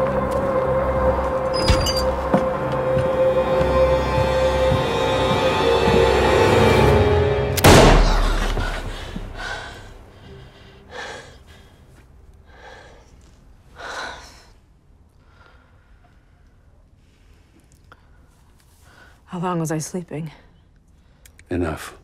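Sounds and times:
tense film score: 0:00.0 - 0:22.0
loud hit: 0:07.5 - 0:09.4.

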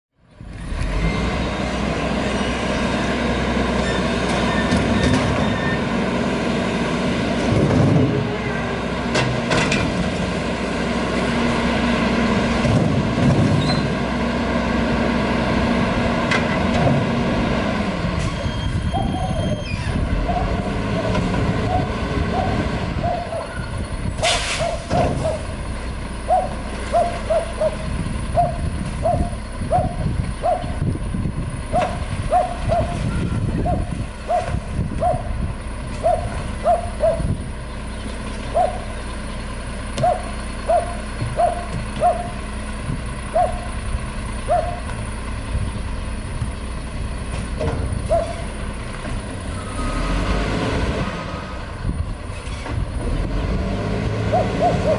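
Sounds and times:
diesel truck idling: 0:00.3 - 0:54.9
dog barking: 0:21.7 - 0:23.6, 0:24.6 - 0:25.4, 0:26.3 - 0:27.8, 0:28.4 - 0:30.8, 0:31.7 - 0:33.0, 0:33.6 - 0:35.3, 0:36.0 - 0:37.2, 0:38.5 - 0:38.8, 0:40.0 - 0:42.4, 0:43.3 - 0:43.7, 0:44.5 - 0:44.9, 0:48.1 - 0:48.4, 0:54.3 - 0:54.9
air brake hiss: 0:24.2 - 0:24.8.

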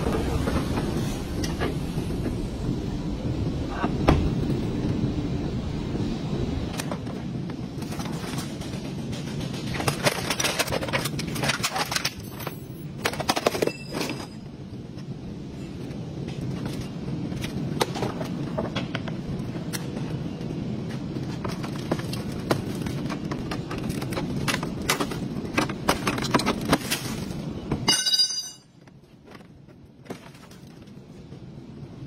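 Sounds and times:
plastic and metal panels cracking: 0:09.3 - 0:12.3, 0:21.3 - 0:28.0.

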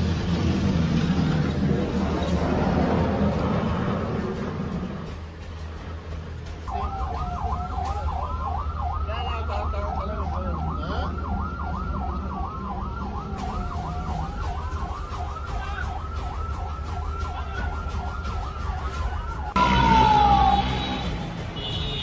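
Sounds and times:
siren tone sliding down: 0:06.7 - 0:21.0
siren yelping: 0:06.7 - 0:21.0
siren wailing: 0:06.7 - 0:21.1.

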